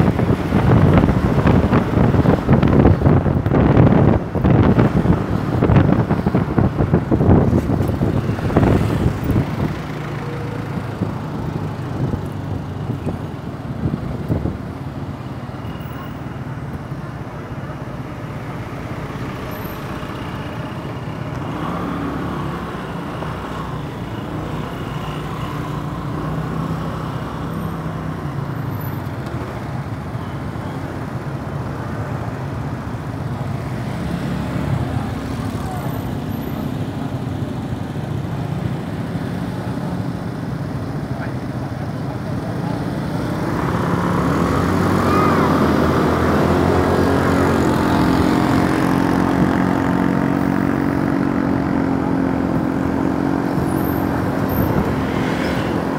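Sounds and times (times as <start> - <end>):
wind buffeting microphone: 0.0 - 15.1
road and traffic noise: 0.0 - 55.9.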